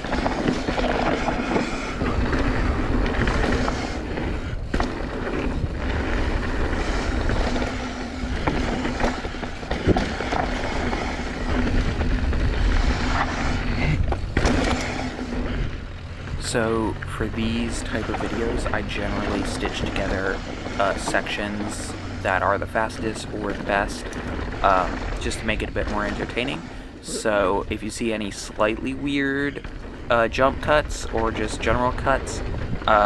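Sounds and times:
bike rattling over dirt trail: 0:00.0 - 0:33.0
wind rumble: 0:00.0 - 0:33.0.

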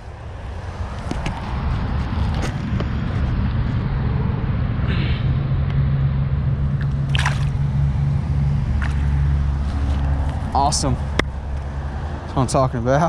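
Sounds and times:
low rumble: 0:00.0 - 0:12.9
water splashing: 0:06.8 - 0:11.5.

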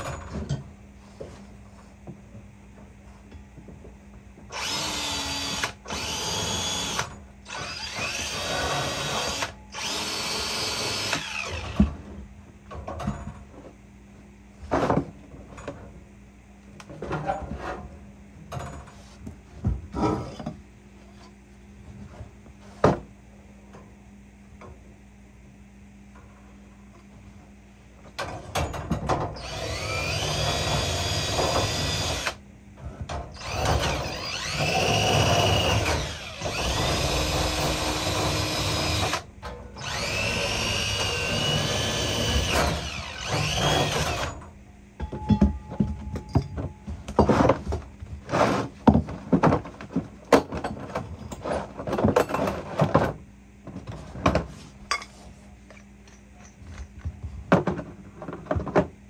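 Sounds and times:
cordless drill whining: 0:04.6 - 0:11.8, 0:29.4 - 0:32.4, 0:33.4 - 0:39.2, 0:39.8 - 0:44.3.

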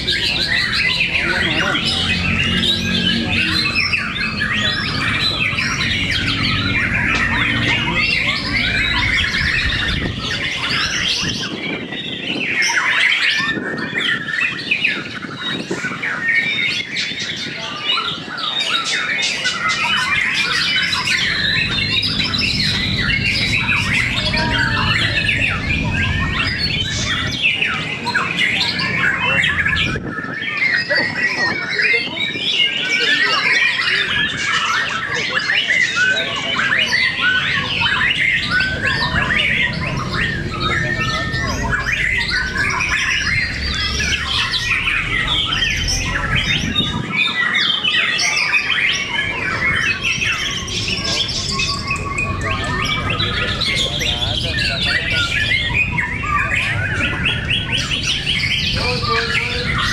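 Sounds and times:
birds singing whistled song: 0:00.0 - 0:59.9.

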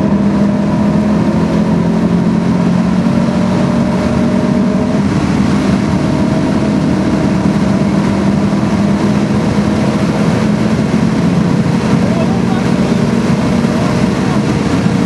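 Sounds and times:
car engine droning: 0:00.0 - 0:15.0
road and wind noise: 0:00.0 - 0:15.0.

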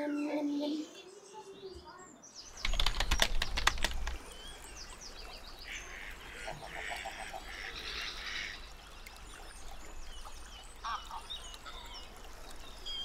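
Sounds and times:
small birds chirping: 0:00.0 - 0:13.0
ducks quacking: 0:05.7 - 0:08.7, 0:10.8 - 0:11.9.

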